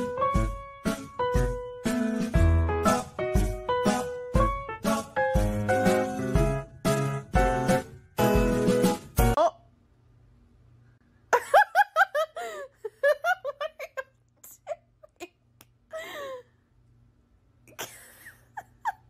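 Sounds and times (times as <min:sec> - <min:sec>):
person giggling: 0:11.3 - 0:16.5, 0:17.7 - 0:19.0
breathy laugh: 0:11.4 - 0:14.1, 0:17.7 - 0:19.0.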